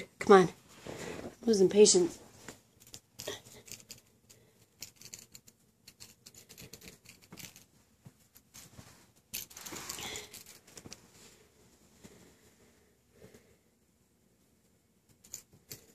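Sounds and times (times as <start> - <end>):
kitten playing with plastic ball: 2.4 - 11.1.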